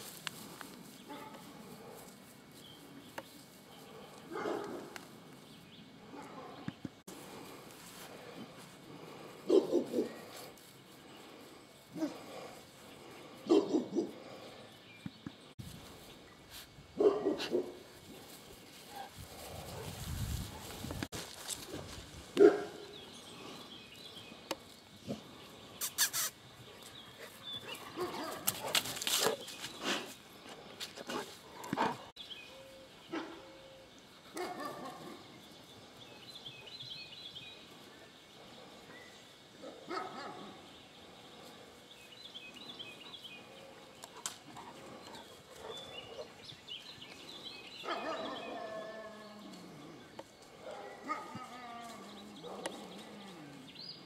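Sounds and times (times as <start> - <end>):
dog barking: 4.3 - 4.9, 9.5 - 10.2, 13.4 - 14.2, 17.0 - 17.8, 22.4 - 22.9, 28.0 - 28.7, 33.1 - 33.5, 34.4 - 35.2, 39.6 - 40.6, 47.8 - 48.6, 50.6 - 51.4, 52.4 - 52.8.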